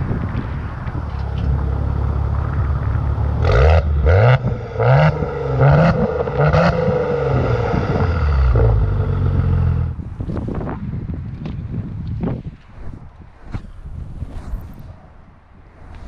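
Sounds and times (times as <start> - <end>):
car engine revving: 1.1 - 10.0.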